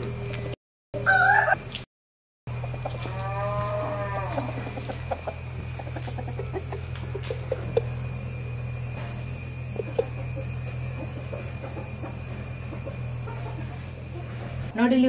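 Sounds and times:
rooster squawking: 0:01.0 - 0:01.6
rooster call rising and falling: 0:01.0 - 0:01.7, 0:02.6 - 0:05.4
rooster clucking: 0:01.0 - 0:01.7, 0:02.5 - 0:03.1, 0:04.2 - 0:08.2, 0:09.6 - 0:14.7.

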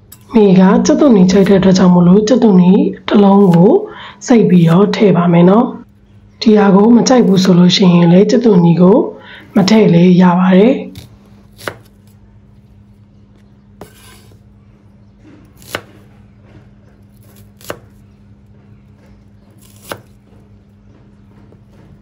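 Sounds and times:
cleaver chopping onion on board: 0:10.9 - 0:12.1, 0:13.8 - 0:14.4, 0:15.4 - 0:16.2, 0:16.9 - 0:18.0, 0:18.9 - 0:20.5.

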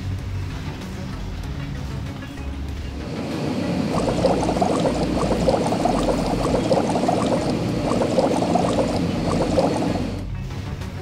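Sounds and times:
bubbling foamy water: 0:03.2 - 0:10.2.

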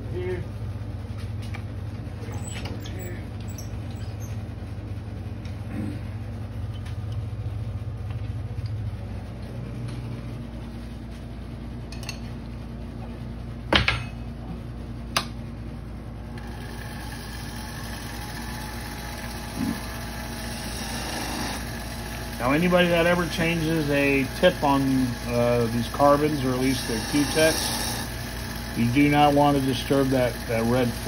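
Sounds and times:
lathe motor humming: 0:16.2 - 0:31.0.

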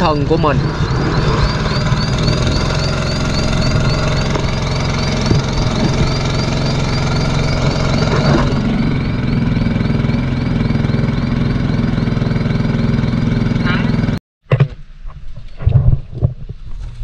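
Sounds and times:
faint high chirp: 0:00.0 - 0:11.5
boat engine running: 0:00.0 - 0:14.2.

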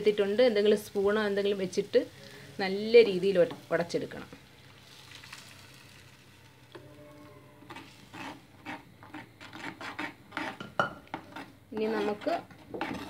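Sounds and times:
thick food being poured: 0:04.5 - 0:06.7
spoon scraping earthenware pot: 0:06.7 - 0:13.0.

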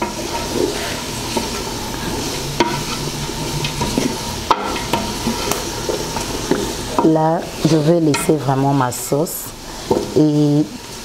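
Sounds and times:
spatula stirring and scraping: 0:00.0 - 0:08.8
vegetables sizzling in a pot: 0:00.0 - 0:11.0.

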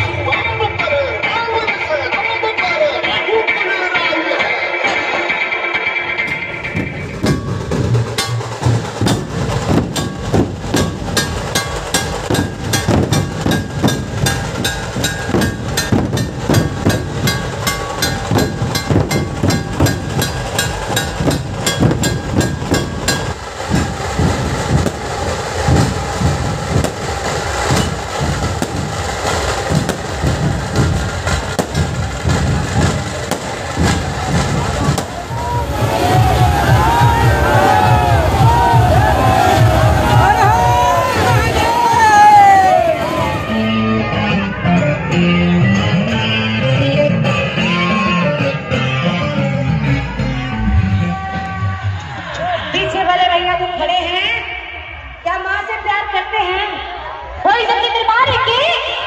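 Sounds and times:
barrel drums beating fast rhythm: 0:06.2 - 0:43.5.

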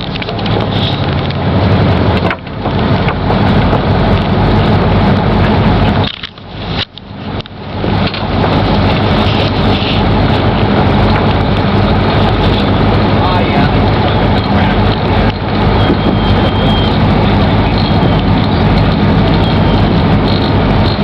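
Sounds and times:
boat engine hum: 0:00.0 - 0:21.0
wind buffeting microphone: 0:00.0 - 0:21.0.

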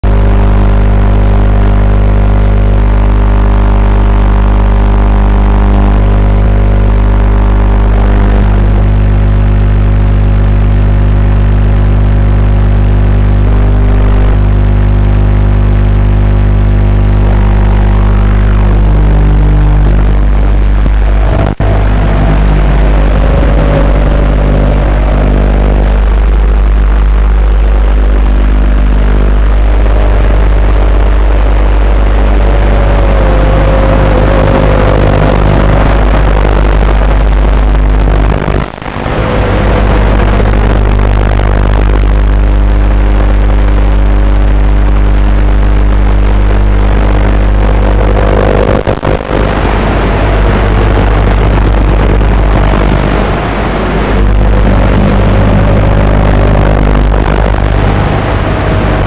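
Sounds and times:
drone motors buzzing and whining: 0:00.0 - 0:59.0.

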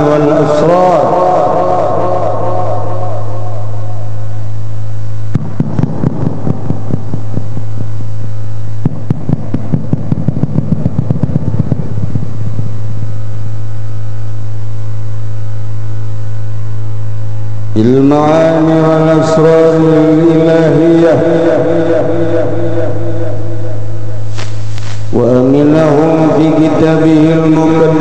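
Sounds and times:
loud electrical hum: 0:00.0 - 0:28.0
crackling clicks: 0:24.3 - 0:25.1.

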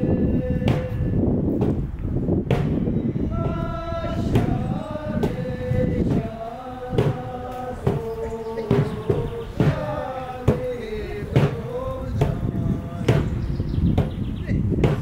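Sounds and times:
men singing in unison: 0:00.0 - 0:01.3, 0:03.2 - 0:13.6
hand drum beats: 0:06.9 - 0:12.5.

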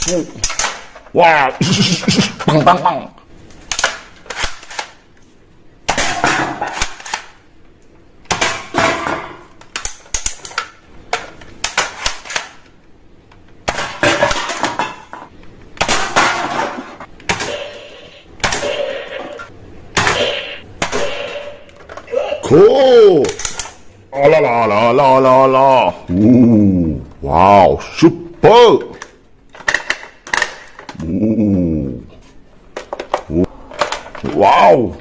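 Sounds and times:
plastic toy guns clicking: 0:00.0 - 0:01.0, 0:03.7 - 0:05.0, 0:05.9 - 0:07.4, 0:09.6 - 0:12.7, 0:23.2 - 0:23.8.

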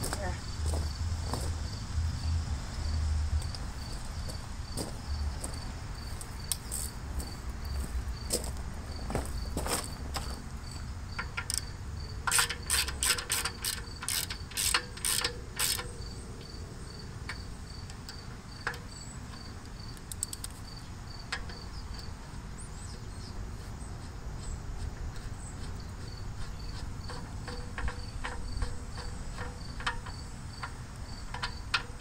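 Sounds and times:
cricket chirping: 0:00.0 - 0:32.0
ratchet wrench clicking: 0:11.2 - 0:16.1, 0:20.0 - 0:20.6, 0:26.7 - 0:32.0.

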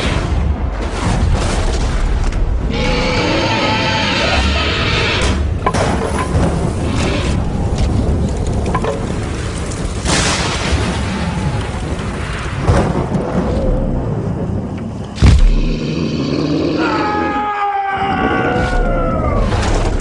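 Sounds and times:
heavy booming hits: 0:15.2 - 0:15.9.

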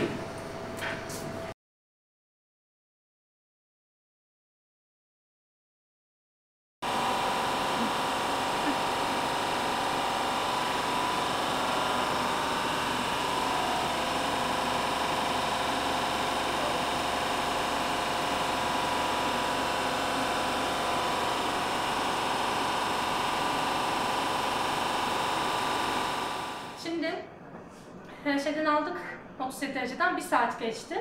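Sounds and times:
incubator shaker humming: 0:06.9 - 0:16.4.

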